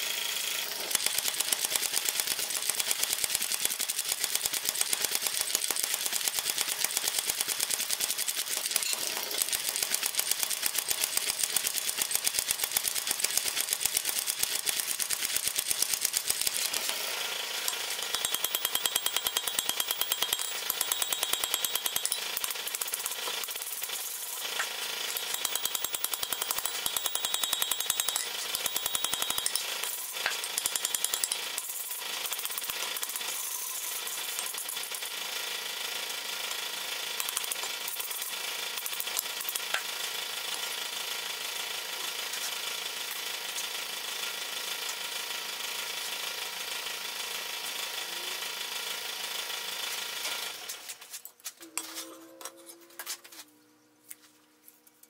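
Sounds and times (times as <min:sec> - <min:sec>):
power hammer striking iron: 0:17.7 - 0:22.6, 0:24.6 - 0:29.6, 0:30.2 - 0:31.5
hand hammer ringing on anvil: 0:18.2 - 0:22.2, 0:25.4 - 0:29.6.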